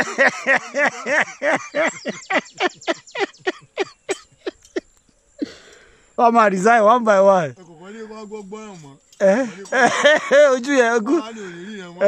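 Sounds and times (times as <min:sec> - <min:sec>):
person laughing: 0:00.0 - 0:05.7, 0:09.2 - 0:11.9.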